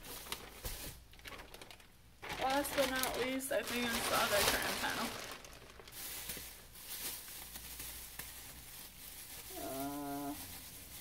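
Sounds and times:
fabric rustling: 0.0s - 11.0s
plastic bag rustling: 0.0s - 11.0s
low hummed voice: 9.5s - 10.7s.

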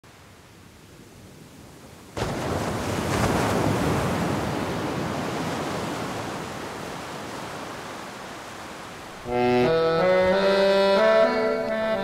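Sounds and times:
ocean surf breaking: 1.1s - 10.4s.

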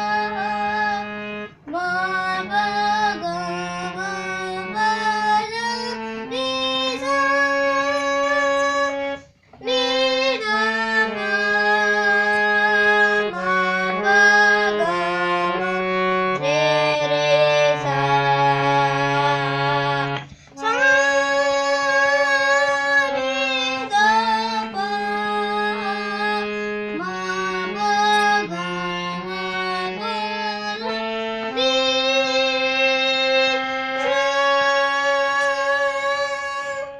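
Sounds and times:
boy singing: 0.0s - 36.9s
harmonium playing sustained notes: 0.0s - 36.9s.

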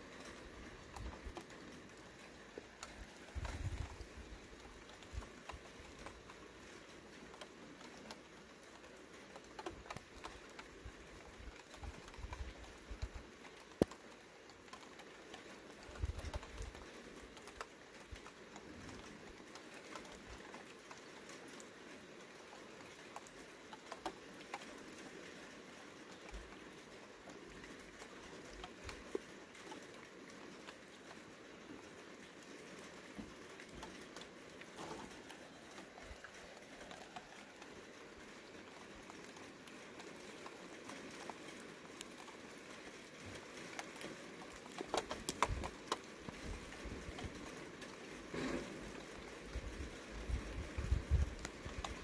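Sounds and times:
raindrops pattering: 0.0s - 52.0s
sharp drip tick: 11.4s - 21.7s.

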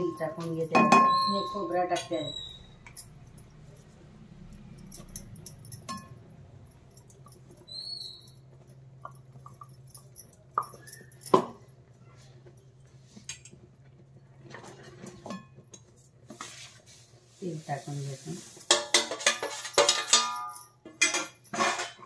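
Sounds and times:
utensils clinking against pan: 0.0s - 3.1s, 5.5s - 6.2s, 14.5s - 16.0s, 18.4s - 22.0s.

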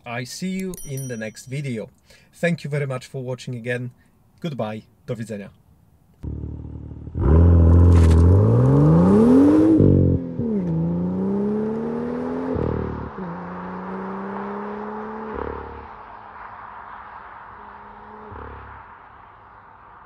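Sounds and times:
car engine accelerating hard: 6.2s - 19.6s.

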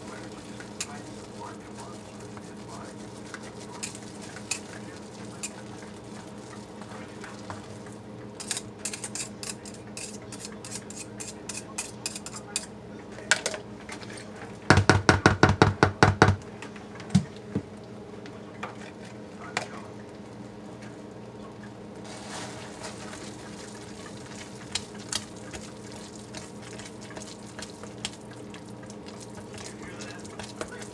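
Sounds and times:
blender knocking against tub: 14.7s - 16.4s.

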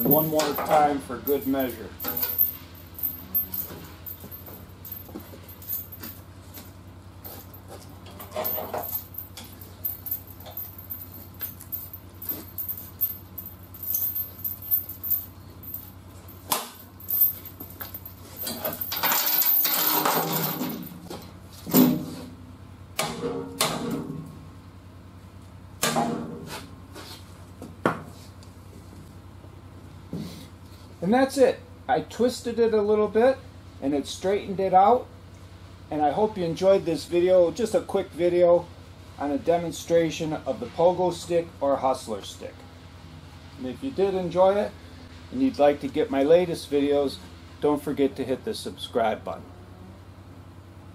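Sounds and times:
steel chain clinking and rattling: 0.0s - 21.2s
metal knocks and clank: 25.8s - 26.5s.

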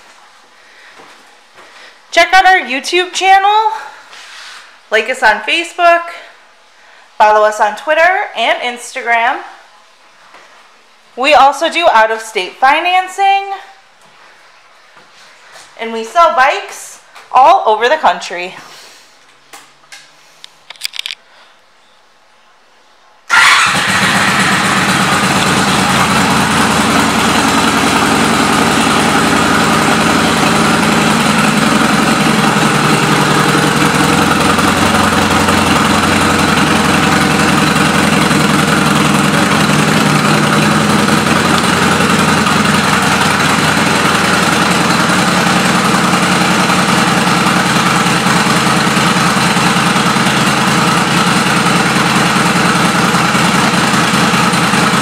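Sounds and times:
motorcycle engine idling: 23.3s - 55.0s.

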